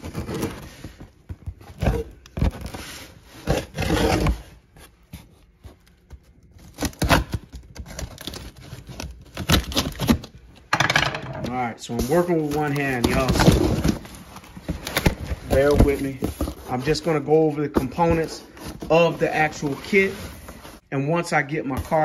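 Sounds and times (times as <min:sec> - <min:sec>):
packing tape being slit open: 0:06.5 - 0:10.4.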